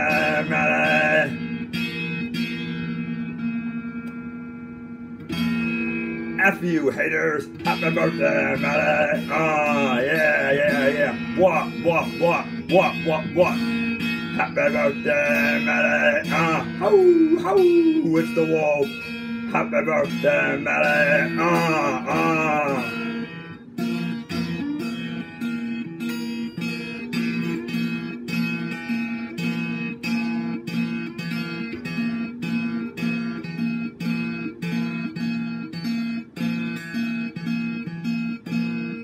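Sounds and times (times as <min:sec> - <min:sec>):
person singing: 0:00.0 - 0:01.4, 0:06.4 - 0:23.4, 0:24.1 - 0:25.4
electric guitar strumming: 0:00.0 - 0:39.0.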